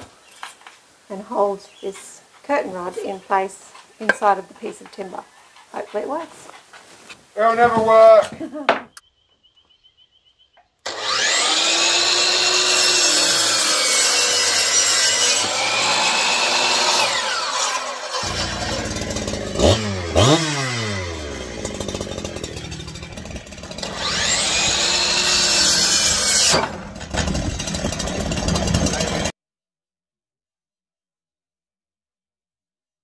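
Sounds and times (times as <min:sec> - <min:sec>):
electric power tool cutting wood: 0:10.8 - 0:29.3.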